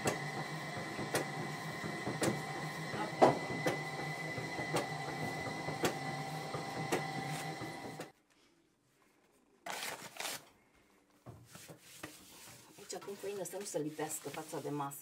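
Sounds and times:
dough kneading machine motor hum: 0.0 - 8.1.

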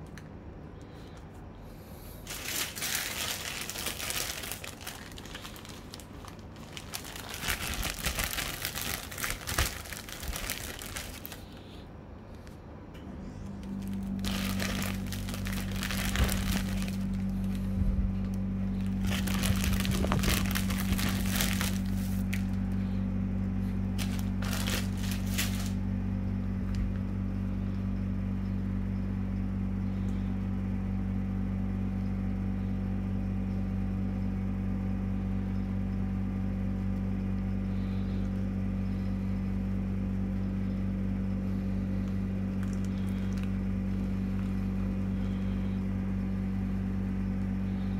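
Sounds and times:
steady low hum: 0.0 - 47.9
plastic sheet crinkling: 2.2 - 11.6, 13.6 - 22.8, 23.9 - 25.8, 42.5 - 44.7.

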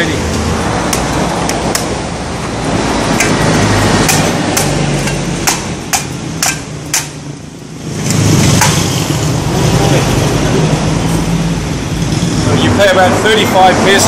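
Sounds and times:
machete chopping coconut: 4.0 - 7.2, 8.1 - 8.8.

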